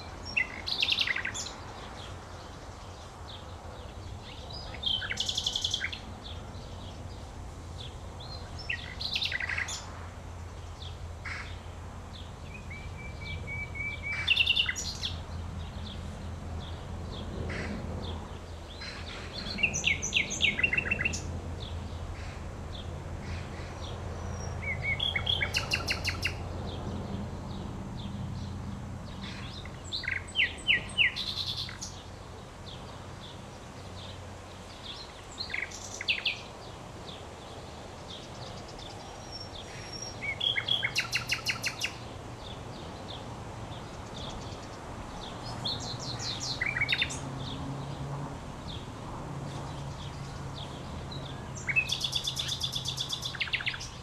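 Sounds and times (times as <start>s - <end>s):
nightingale singing: 0.0s - 3.0s, 4.2s - 7.0s, 7.8s - 9.9s, 12.4s - 15.9s, 18.7s - 21.3s, 24.2s - 26.5s, 29.1s - 32.1s, 33.9s - 36.5s, 38.0s - 47.2s, 51.1s - 54.0s.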